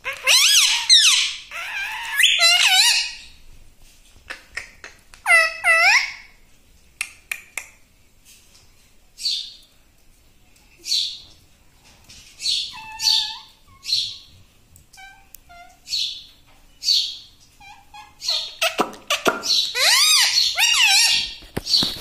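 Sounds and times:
parakeet high calls: 0:00.0 - 0:03.4, 0:05.3 - 0:06.3, 0:12.4 - 0:14.3, 0:16.8 - 0:21.8.

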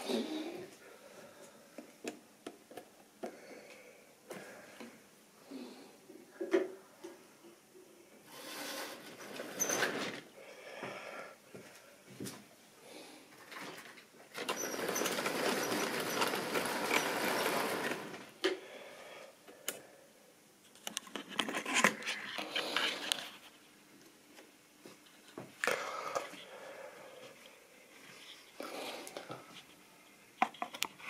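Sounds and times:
model train whirring clatter: 0:14.4 - 0:18.3.

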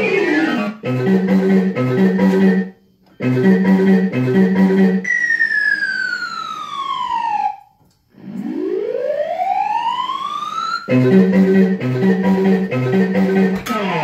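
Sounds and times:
marimba-like game music: 0:00.0 - 0:05.3, 0:10.9 - 0:14.0
falling electronic tone: 0:00.0 - 0:14.0
rising electronic tone: 0:00.0 - 0:14.0.

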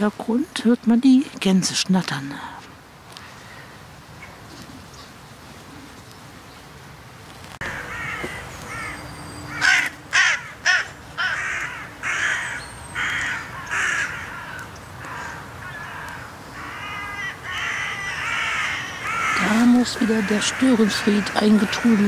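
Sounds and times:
crows cawing: 0:07.6 - 0:22.0.

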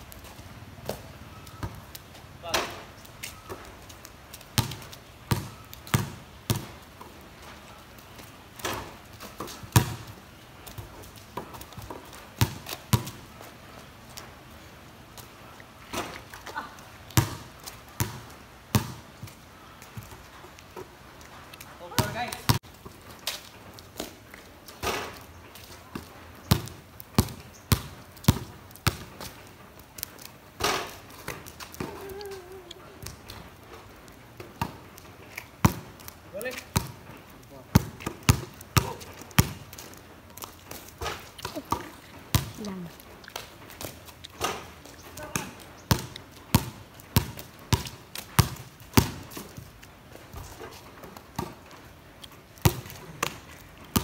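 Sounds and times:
basketball bouncing on concrete: 0:04.6 - 0:07.1, 0:08.6 - 0:13.2, 0:17.2 - 0:20.2, 0:21.9 - 0:23.0, 0:25.9 - 0:29.4, 0:33.0 - 0:33.4, 0:34.4 - 0:34.9, 0:35.6 - 0:37.1, 0:37.7 - 0:39.9, 0:41.0 - 0:42.7, 0:44.4 - 0:49.7, 0:50.3 - 0:51.7, 0:52.6 - 0:54.0.

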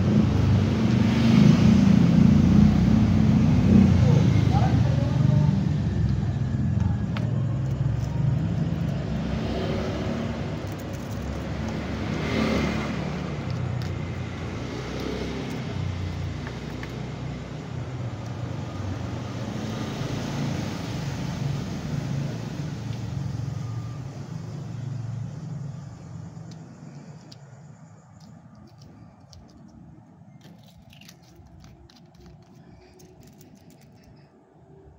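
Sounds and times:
vehicle engine rumbling: 0:00.0 - 0:34.9
faint clicks of objects handled: 0:26.4 - 0:34.4.

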